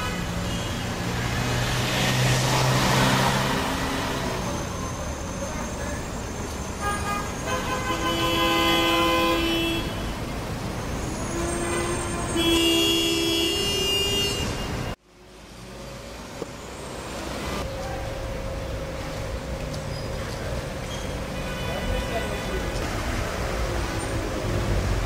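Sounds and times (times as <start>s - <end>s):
street noise: 0.0s - 25.0s
tram horn blasts: 6.8s - 10.1s, 11.2s - 14.8s.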